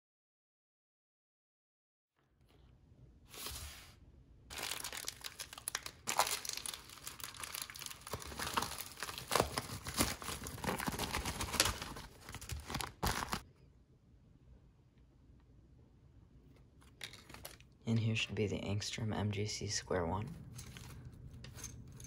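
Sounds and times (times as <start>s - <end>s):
plastic bag tearing and crinkling: 4.5s - 13.4s.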